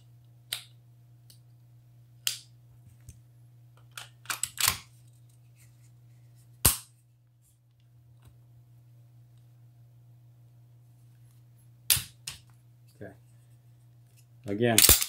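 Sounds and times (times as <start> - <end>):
metal clicks and clacks of gun parts: 3.9 - 4.8, 14.8 - 15.0.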